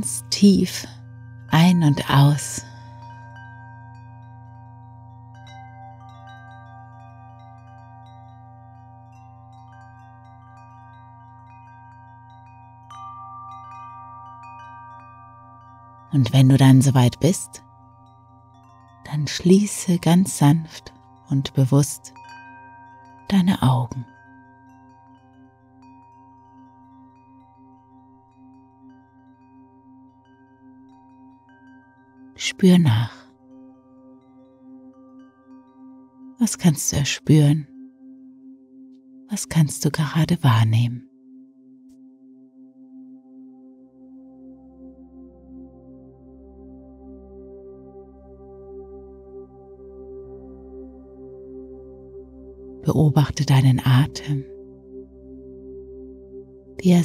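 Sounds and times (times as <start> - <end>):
wind chimes tinkling: 0.0 - 37.0.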